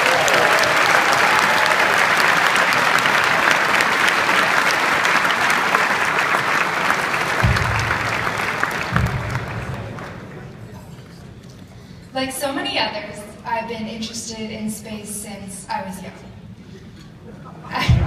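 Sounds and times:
audience applauding: 0.0s - 10.9s
low thumps: 7.4s - 10.0s.

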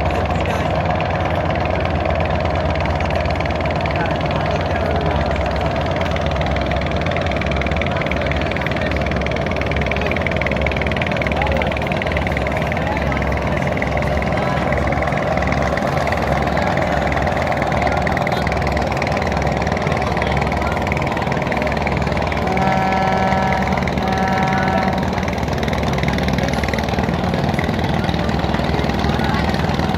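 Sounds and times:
diesel boat engine droning: 0.0s - 29.9s
boat horn blasts: 14.3s - 27.6s.

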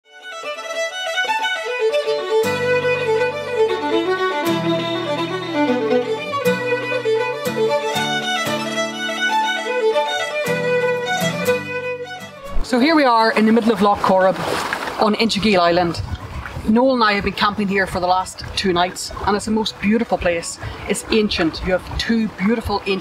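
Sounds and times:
fiddle playing lively melody: 0.0s - 13.1s.

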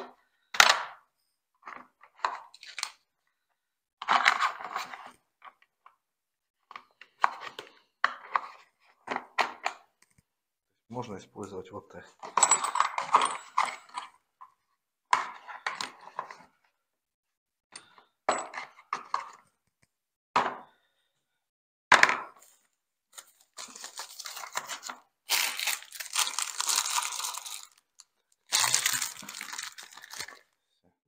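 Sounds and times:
plastic bag crinkling: 25.3s - 30.5s.

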